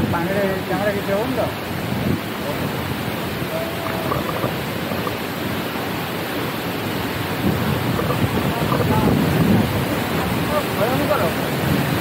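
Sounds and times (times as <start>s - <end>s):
waterfall roaring: 0.0s - 12.0s
faint voices: 3.4s - 5.2s.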